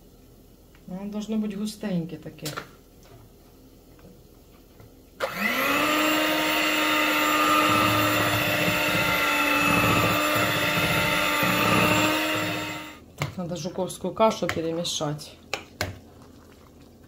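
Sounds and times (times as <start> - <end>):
electric mixer motor whine: 5.2 - 13.0
beaters churning batter: 5.2 - 17.0.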